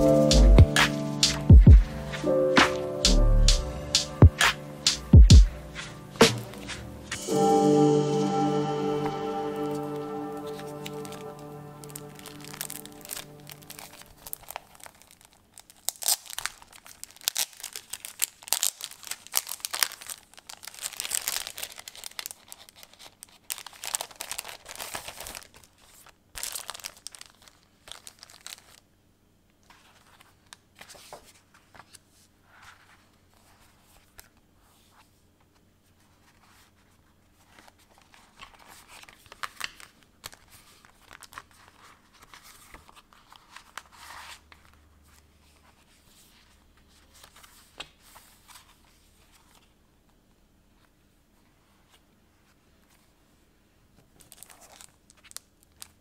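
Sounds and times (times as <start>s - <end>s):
plastic sleeves and paper crinkling: 9.8s - 28.9s, 29.5s - 49.8s, 50.7s - 56.0s.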